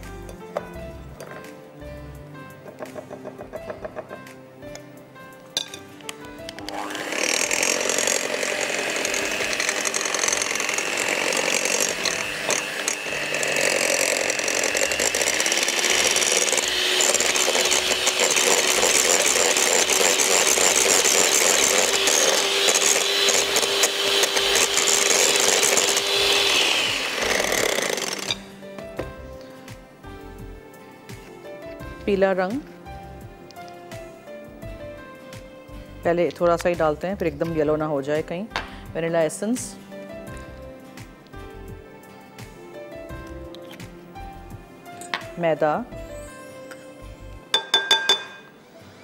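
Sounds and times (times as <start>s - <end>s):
electric hand mixer whisking batter: 6.6s - 28.5s.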